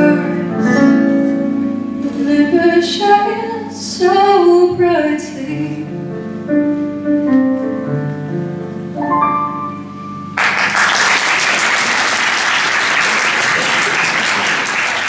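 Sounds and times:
piano chords: 0.0 - 15.0
audience applauding: 10.4 - 15.0.

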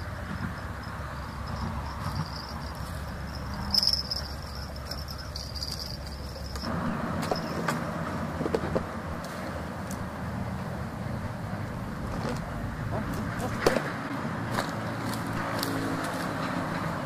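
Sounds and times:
insects buzzing: 0.0 - 7.8
road traffic rumble: 0.0 - 17.0
vehicle passing: 0.0 - 17.0.

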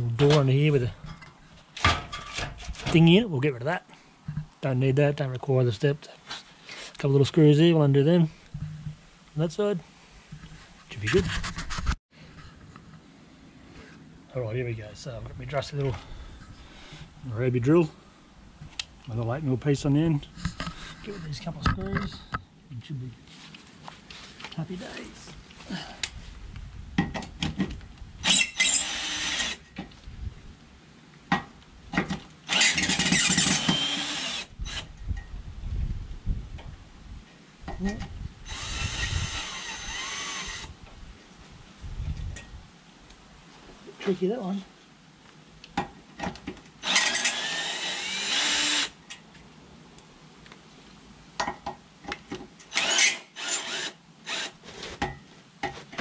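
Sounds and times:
cordless drill whining: 28.2 - 29.6, 32.5 - 34.9, 38.5 - 40.7, 46.8 - 49.0, 52.7 - 54.6
cordless drill backing out screws: 32.5 - 34.8, 46.8 - 48.9.

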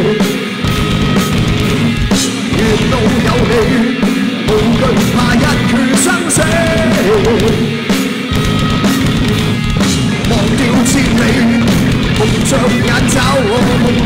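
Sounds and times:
bass guitar: 0.0 - 14.0
distorted electric guitars: 0.0 - 14.0
drum kit: 0.0 - 14.0.

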